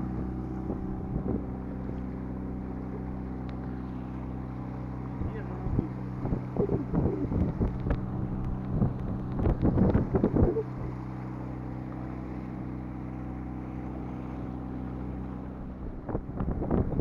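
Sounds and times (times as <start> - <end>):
wind buffeting microphone: 0.0 - 2.2, 5.1 - 11.1, 15.6 - 17.0
boat engine droning: 0.0 - 17.0.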